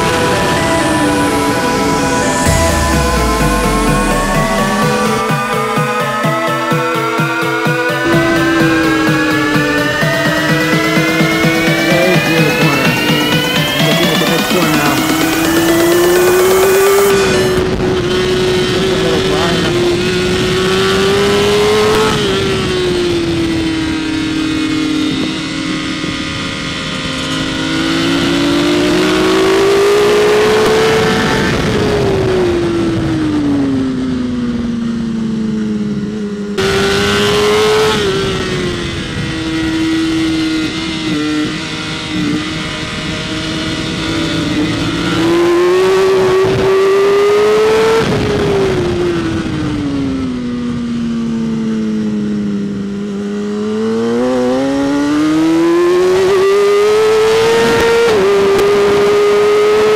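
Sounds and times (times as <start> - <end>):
wind and road noise: 0.0 - 5.3, 7.0 - 59.9
motorcycle engine revving: 0.0 - 59.9.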